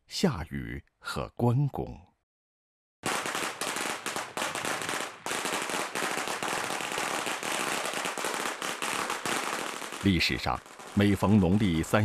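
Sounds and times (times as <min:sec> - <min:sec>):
firecrackers crackling: 0:03.0 - 0:12.0.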